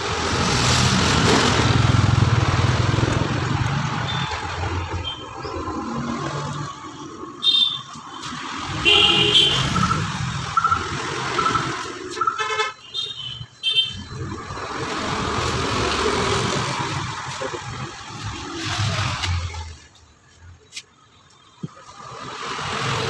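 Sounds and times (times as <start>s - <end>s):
street traffic passing: 0.0s - 23.0s
vehicle horn toots: 8.7s - 10.7s, 11.4s - 14.0s.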